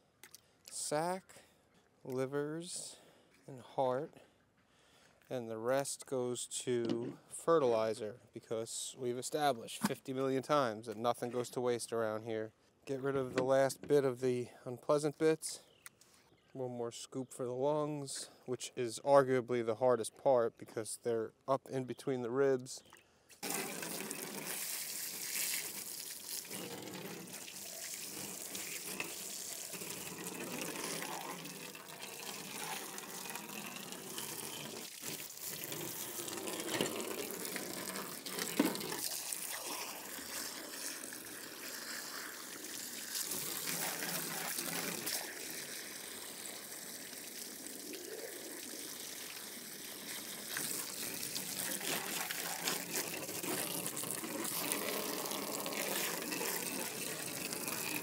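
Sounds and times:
hose water splashing: 23.4s - 58.0s.

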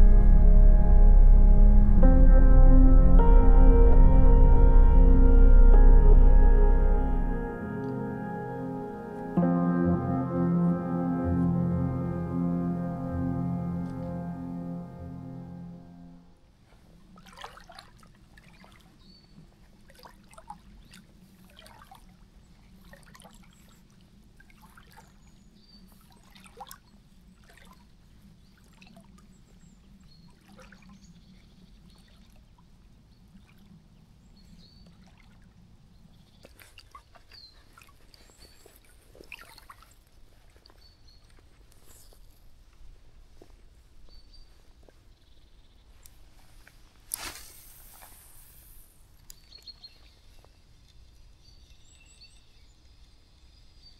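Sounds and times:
low steady hum: 0.0s - 16.4s.

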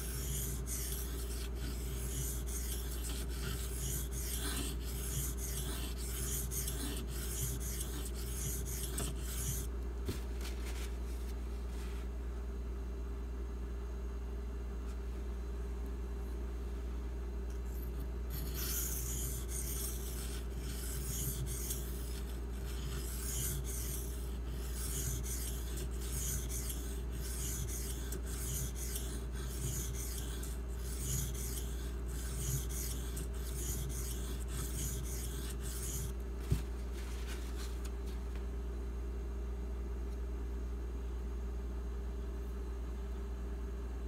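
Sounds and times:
knife blade scraping on whetstone: 0.0s - 9.7s, 17.7s - 36.2s.

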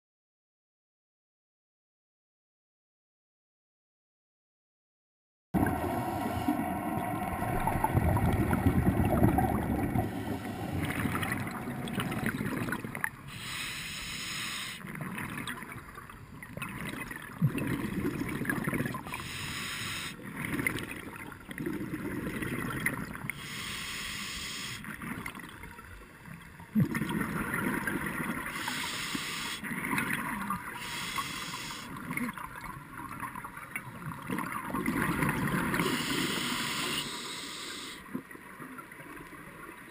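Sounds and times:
exhaled bubbles gushing: 5.6s - 13.3s, 14.8s - 19.4s, 26.7s - 28.7s, 33.9s - 37.2s
hissing regulator inhale: 5.9s - 7.0s, 9.8s - 12.4s, 13.2s - 14.9s, 19.1s - 20.2s, 23.3s - 24.9s, 28.4s - 29.7s, 30.7s - 32.0s, 35.7s - 38.1s.

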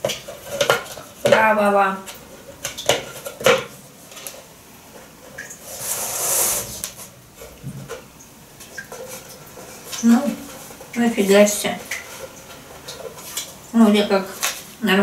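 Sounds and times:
plastic lid rustling scrape: 5.6s - 7.9s, 8.9s - 10.9s.

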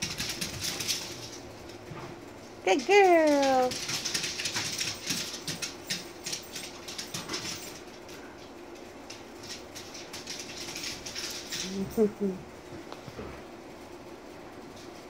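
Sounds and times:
dog claws clicking on hardwood floor: 0.0s - 1.8s, 3.2s - 11.8s.

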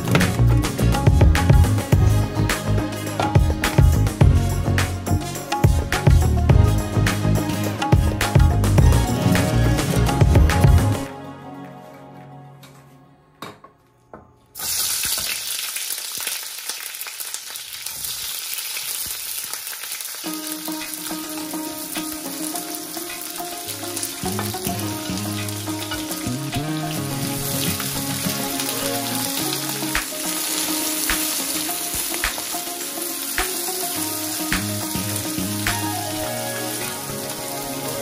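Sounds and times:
soft background music: 0.0s - 14.0s, 20.3s - 38.0s
vegetables sizzling in oil: 14.6s - 38.0s.

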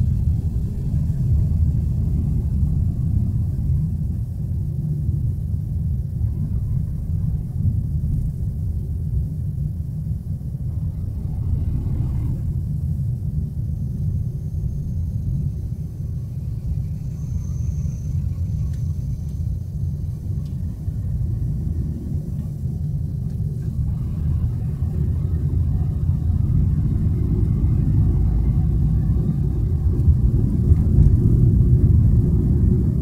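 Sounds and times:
car engine and tyre noise: 0.0s - 33.0s.

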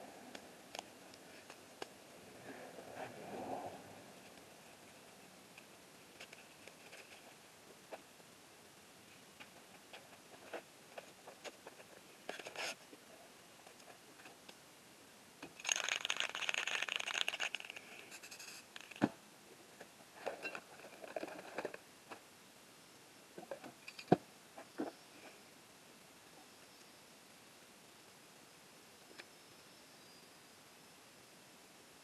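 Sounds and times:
plastic crinkling: 15.6s - 19.1s.

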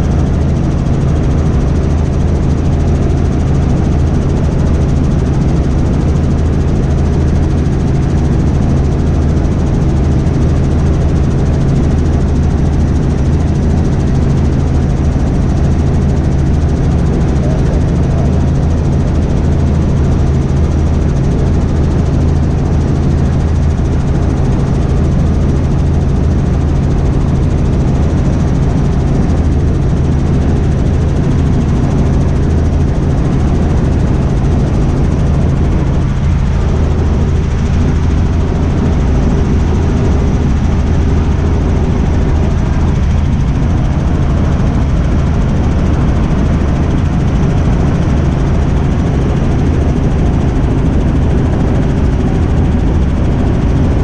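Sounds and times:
helicopter rotor and engine drone: 0.0s - 54.0s.

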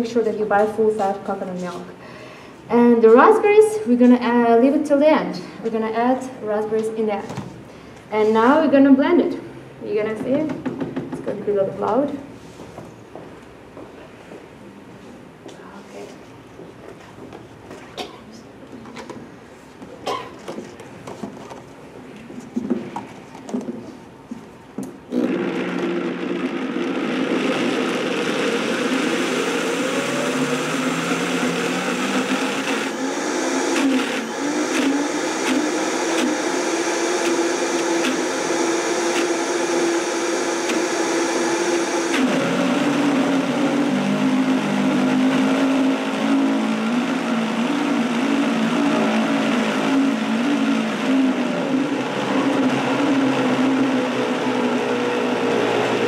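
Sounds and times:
blender motor running: 25.1s - 56.0s.

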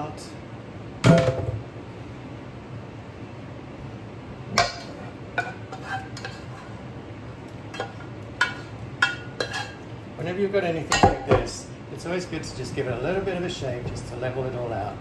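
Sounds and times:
steady low hum: 0.0s - 15.0s
spatula scraping pot: 5.4s - 6.8s, 7.7s - 9.8s.

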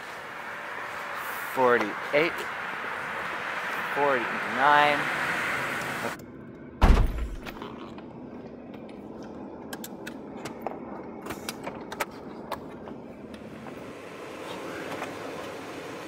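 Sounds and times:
car door thudding shut: 6.8s - 7.4s.

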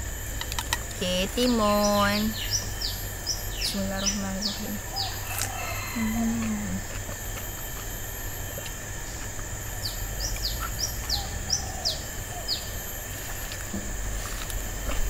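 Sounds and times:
faint outdoor background noise: 0.0s - 15.0s
small bird chirping: 1.1s - 6.8s, 7.4s - 13.4s.

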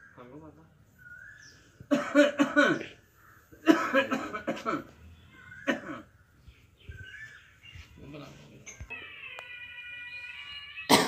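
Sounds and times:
man coughing: 1.9s - 3.0s, 3.6s - 4.9s, 5.7s - 6.1s.

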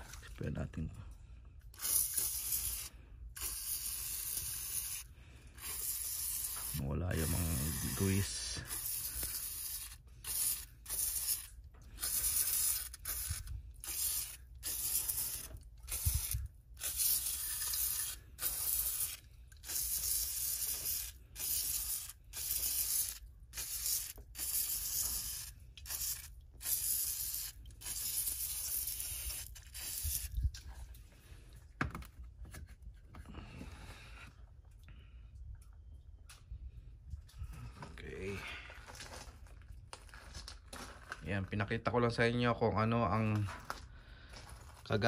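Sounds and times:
aerosol spray hissing bursts: 1.8s - 30.4s.

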